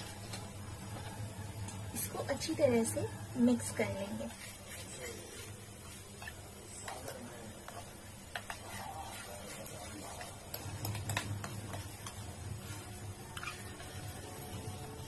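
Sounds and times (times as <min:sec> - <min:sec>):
spoon clicking and scraping bowl: 0:07.7 - 0:12.3.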